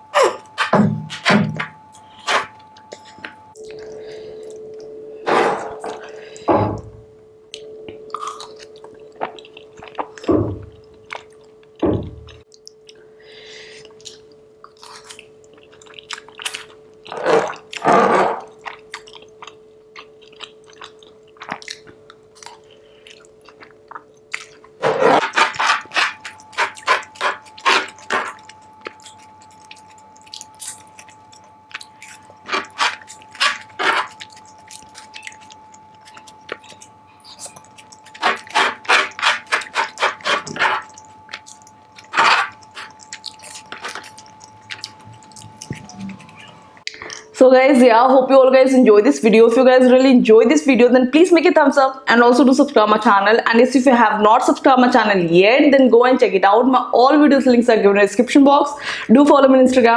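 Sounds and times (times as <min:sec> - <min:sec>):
person chewing and lip-smacking: 0:00.0 - 0:04.9, 0:07.5 - 0:47.3.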